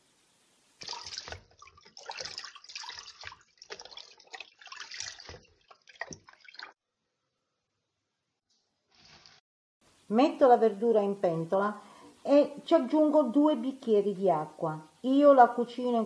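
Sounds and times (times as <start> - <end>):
water splashing and dripping: 0.6 - 6.8.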